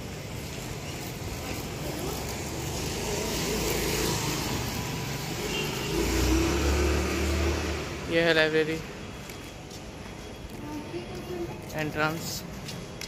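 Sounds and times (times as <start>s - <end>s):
motor vehicle passing: 1.4s - 8.1s.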